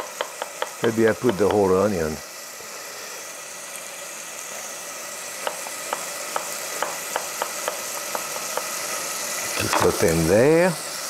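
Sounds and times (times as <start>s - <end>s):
knife chopping on wooden board: 0.0s - 1.6s, 5.4s - 8.7s
bacon sizzling in oil: 0.0s - 11.0s.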